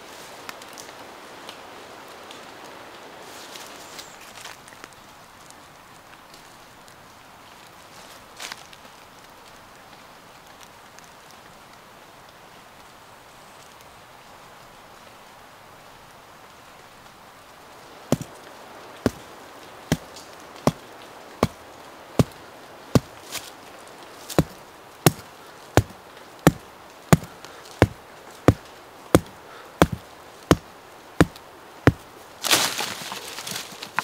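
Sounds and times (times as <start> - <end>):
faint forest background: 0.0 - 34.0
hand tool striking wood: 18.1 - 18.3, 19.0 - 19.3, 19.9 - 20.8, 21.4 - 21.6, 22.2 - 23.5, 24.3 - 32.9.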